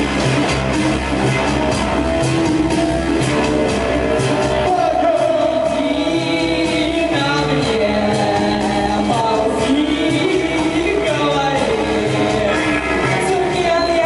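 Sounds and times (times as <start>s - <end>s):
steady beat: 0.0s - 14.0s
synthesizers: 0.0s - 14.0s
person singing long held notes: 4.6s - 14.0s.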